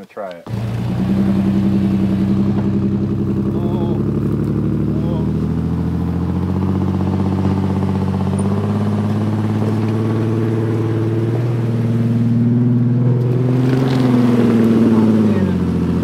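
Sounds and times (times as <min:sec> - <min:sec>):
off-road vehicle engine running: 0:00.4 - 0:16.0.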